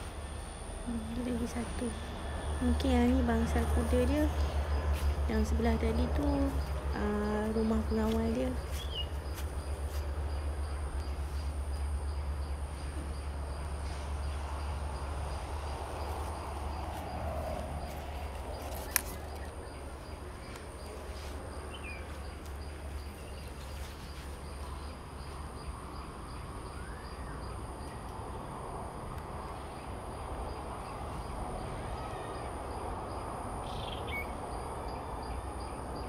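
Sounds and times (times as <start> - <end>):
faint bird chirp: 6.5 - 9.2.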